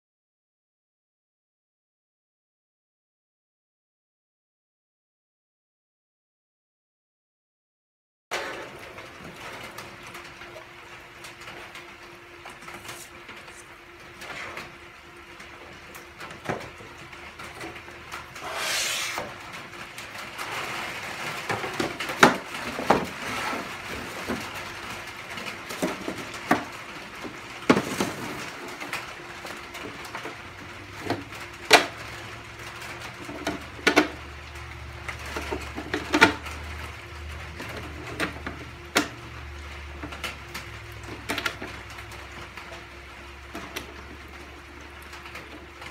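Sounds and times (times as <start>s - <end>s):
brief scraping: 18.4s - 19.3s.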